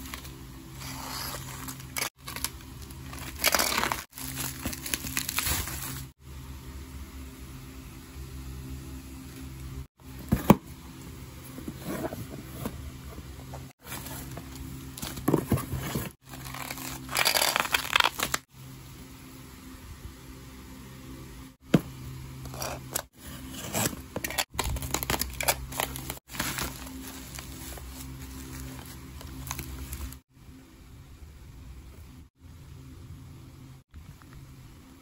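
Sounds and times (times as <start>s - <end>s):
plastic wrap crinkling: 1.2s - 6.1s, 16.2s - 18.4s, 24.5s - 30.2s.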